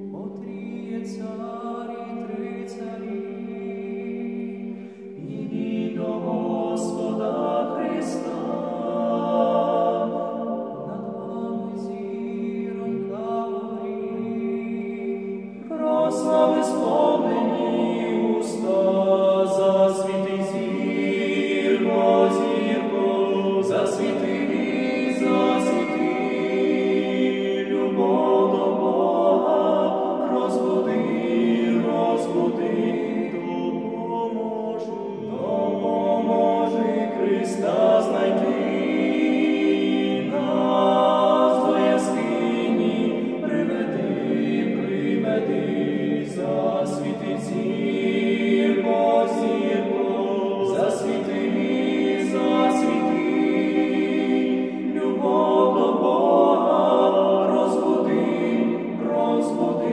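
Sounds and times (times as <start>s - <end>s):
male trio singing a cappella: 0.0s - 59.9s.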